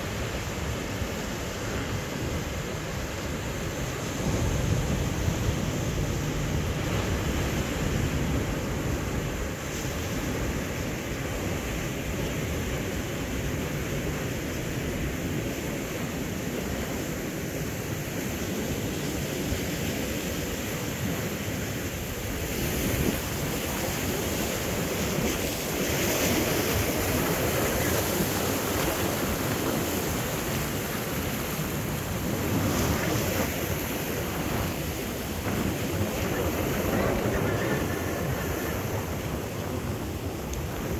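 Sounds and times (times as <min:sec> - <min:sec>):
wind buffeting microphone: 0:20.8 - 0:40.9
surf breaking on rocks: 0:21.1 - 0:40.9.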